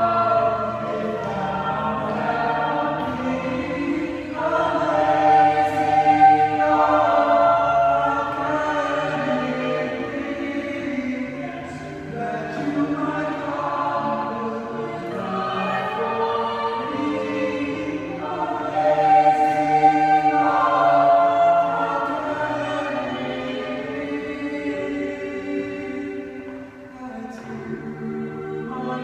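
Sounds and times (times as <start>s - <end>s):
a cappella group singing a hymn: 0.0s - 29.0s.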